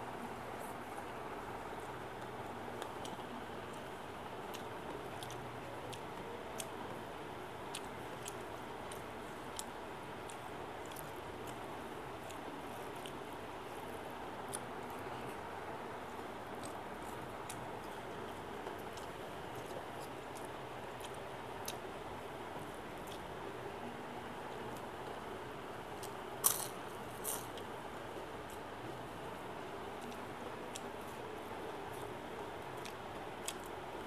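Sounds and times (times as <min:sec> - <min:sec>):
steady background hiss: 0:00.0 - 0:34.0
person chewing: 0:04.5 - 0:06.0
chewing: 0:04.5 - 0:06.7, 0:07.7 - 0:11.6, 0:16.6 - 0:21.8, 0:31.9 - 0:33.8.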